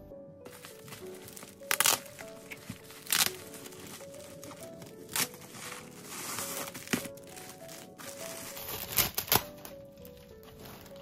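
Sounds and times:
background music melody: 0.0s - 11.0s
bubble wrap crackles: 0.5s - 11.0s
bubble wrap crinkling: 0.5s - 11.0s.

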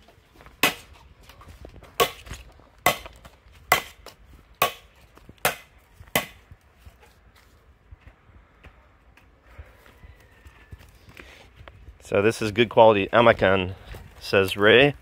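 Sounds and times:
hand tool striking wood: 0.6s - 0.9s, 2.0s - 6.4s.

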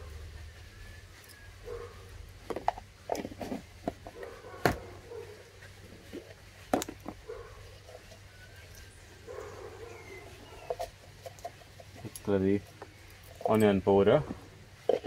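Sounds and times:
containers tapping and knocking: 2.4s - 4.8s, 6.7s - 7.2s, 14.2s - 15.0s.

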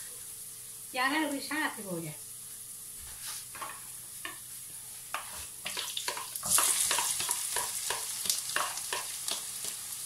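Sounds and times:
oil sizzling loudly: 0.0s - 10.0s
garlic frying in oil: 0.8s - 10.0s
spoon tapping and scraping: 5.1s - 9.8s.

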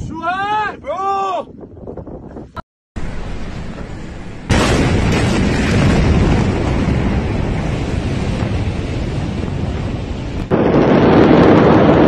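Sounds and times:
wind noise on microphone: 0.0s - 12.0s
low dense explosion rumble: 3.0s - 12.0s.

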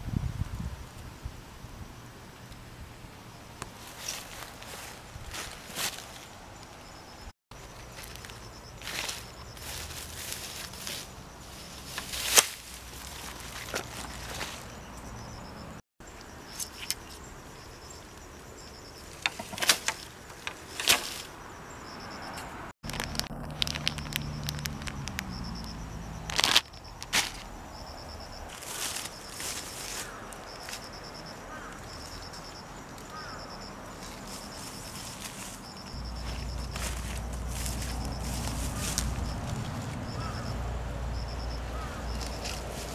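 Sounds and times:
insects chirping: 0.1s - 42.9s
rustling through grass: 3.6s - 6.8s, 7.6s - 15.0s, 19.0s - 21.4s, 26.3s - 27.5s, 28.5s - 30.9s, 33.9s - 40.4s, 41.8s - 42.9s
bamboo poles knocking: 19.2s - 21.2s.

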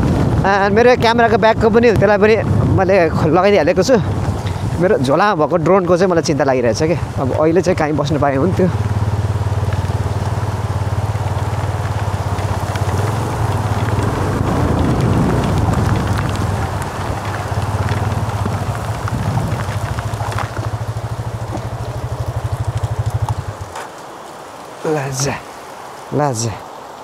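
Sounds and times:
light rain pattering: 0.0s - 27.0s
motorcycle engine running: 7.2s - 23.8s.

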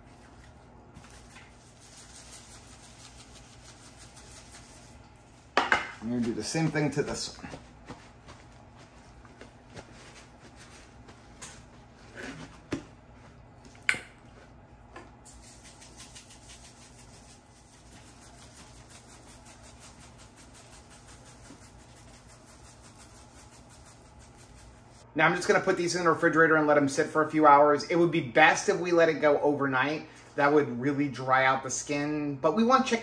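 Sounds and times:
seasoning shaker ticking: 1.1s - 5.0s, 15.3s - 25.0s.

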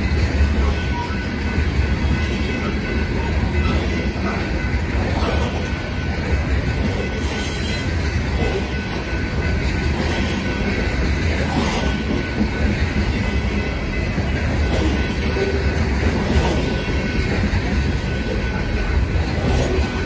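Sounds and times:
train wheels rumbling on rail: 0.0s - 20.0s
high wheel squeal: 0.4s - 8.1s.

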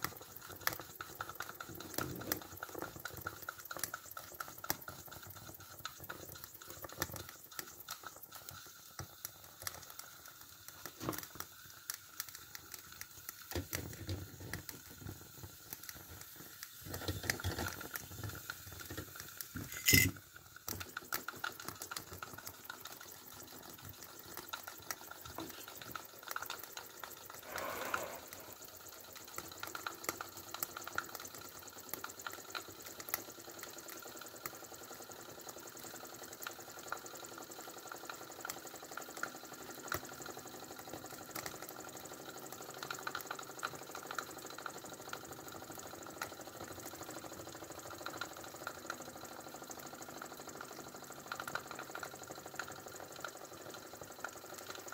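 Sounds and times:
small rapid clicks: 0.0s - 54.9s
steam hissing: 26.4s - 29.8s
steam rush: 27.4s - 28.8s.

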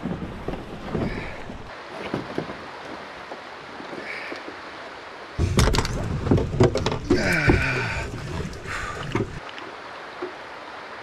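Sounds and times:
canoe hull knocking on rocks: 5.4s - 9.4s.

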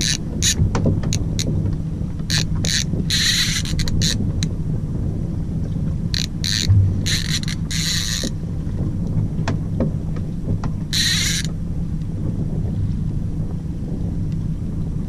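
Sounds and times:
fishing reel whirring: 0.0s - 1.5s, 2.3s - 4.2s, 6.2s - 8.3s, 10.9s - 11.5s
boat engine idling: 6.1s - 8.8s.

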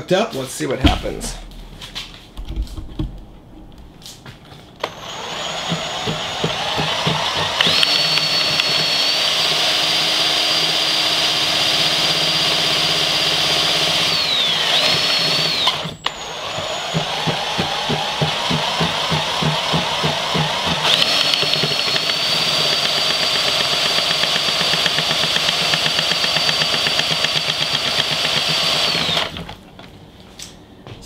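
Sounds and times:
electric drill whining: 4.8s - 29.6s.

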